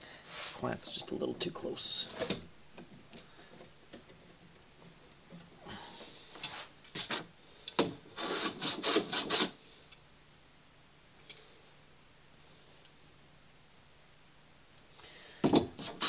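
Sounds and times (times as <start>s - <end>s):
hand plane shaving wood: 8.2s - 9.6s.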